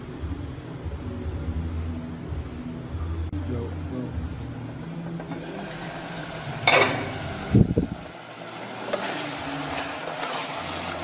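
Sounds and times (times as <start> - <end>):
meat sizzling in a pot: 5.2 - 11.0
pot lid clanking: 6.6 - 7.4
spatula scraping a pot: 8.9 - 11.0.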